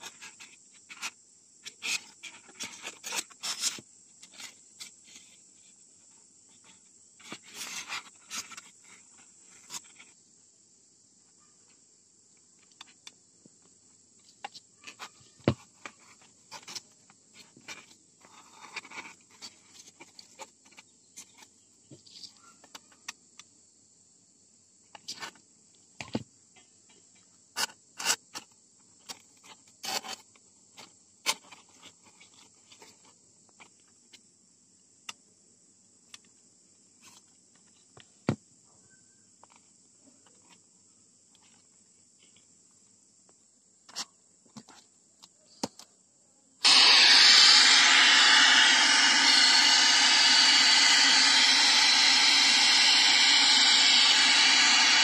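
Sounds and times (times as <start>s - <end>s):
small clicks scrapes and rustles: 0.0s - 10.2s, 14.2s - 23.2s, 27.2s - 34.2s, 41.3s - 42.6s
steady high hiss: 46.6s - 55.0s.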